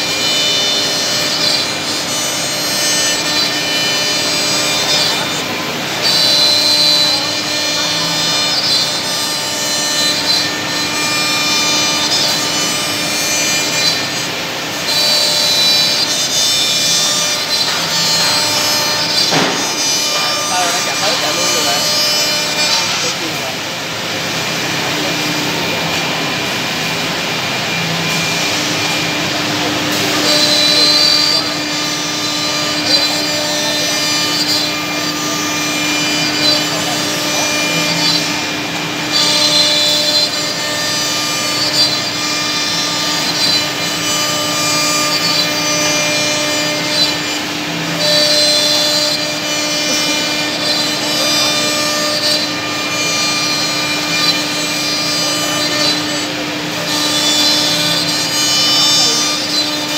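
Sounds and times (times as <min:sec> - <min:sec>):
machine spindles whining: 0:00.0 - 0:59.9
bits cutting wood: 0:06.0 - 0:23.5.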